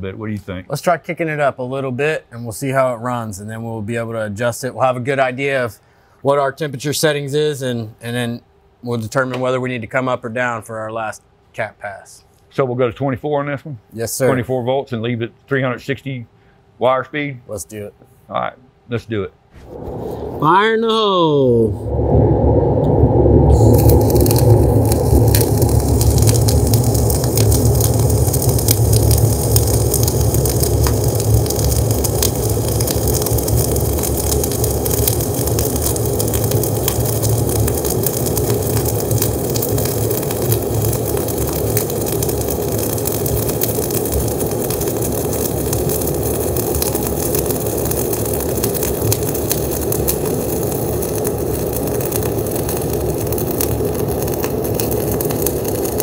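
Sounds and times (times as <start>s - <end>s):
welding arc crackling and hissing: 14.0s - 14.6s, 21.4s - 56.0s.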